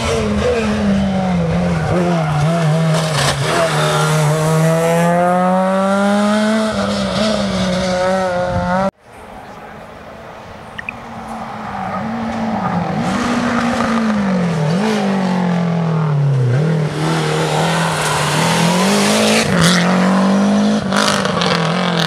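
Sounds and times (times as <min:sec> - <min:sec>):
rally car engine accelerating: 0:00.0 - 0:08.9.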